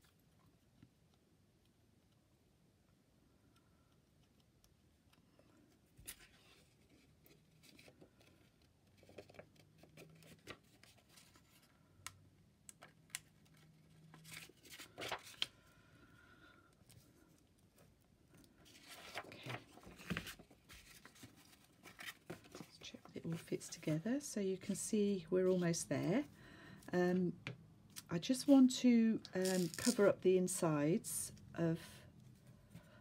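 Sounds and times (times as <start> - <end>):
paper rustling and folding: 5.6 - 11.9, 12.8 - 15.7, 16.8 - 24.8, 29.4 - 30.2.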